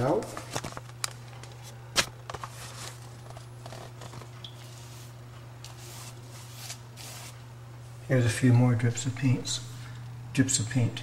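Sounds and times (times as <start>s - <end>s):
steady low hum: 0.0s - 11.0s
paintbrush swishing on wall: 4.6s - 7.4s.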